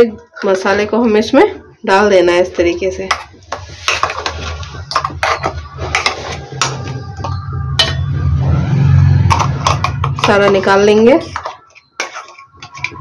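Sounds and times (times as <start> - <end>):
spoon scraping steel jar: 3.1 - 8.1, 9.3 - 13.0.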